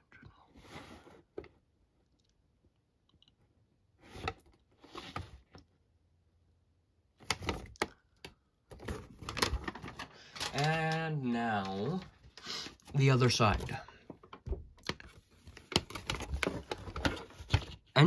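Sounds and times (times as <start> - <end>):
paper rustling and crinkling: 8.7 - 18.0.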